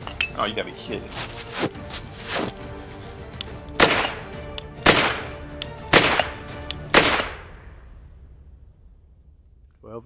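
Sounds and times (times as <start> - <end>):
background music: 0.0 - 9.2
gunshots with echo: 3.8 - 7.7.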